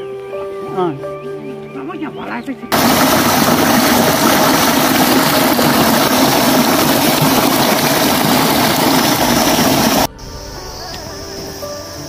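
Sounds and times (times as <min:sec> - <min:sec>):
water gushing and splashing: 0:02.7 - 0:10.1.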